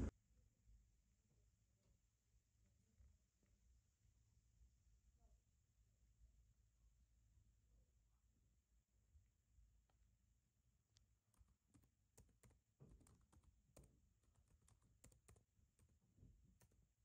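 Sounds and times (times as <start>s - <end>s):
laptop keyboard typing: 11.2s - 17.0s.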